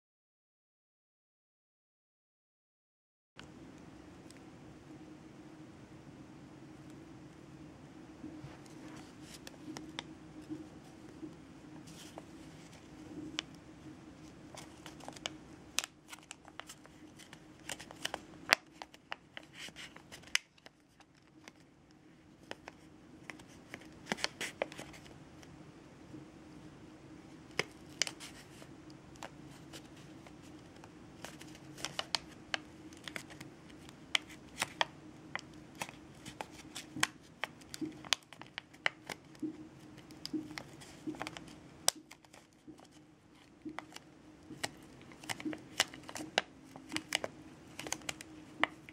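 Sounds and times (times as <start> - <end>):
faint steady hum: 3.4 - 48.9
origami paper crinkling: 8.4 - 25.5, 27.3 - 48.9.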